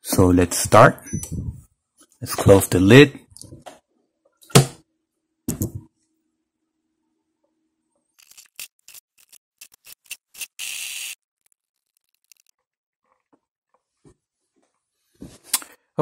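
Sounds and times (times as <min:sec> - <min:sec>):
fast clicks and crackles: 0:08.2 - 0:12.8.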